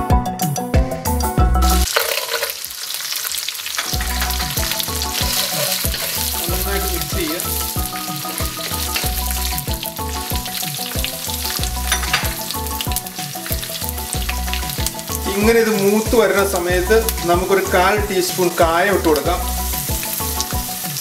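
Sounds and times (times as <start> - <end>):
background music with beat: 0.0 - 1.9, 3.9 - 21.0
nuts sizzling in hot oil: 1.7 - 21.0
wooden spatula stirring: 1.9 - 7.7.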